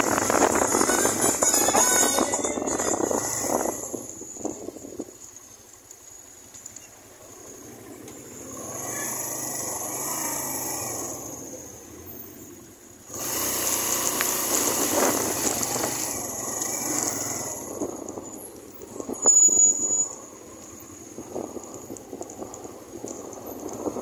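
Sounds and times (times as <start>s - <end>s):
wind noise on microphone: 0.0s - 5.4s, 13.1s - 24.0s
motorcycle engine running: 0.0s - 5.6s, 6.5s - 19.2s.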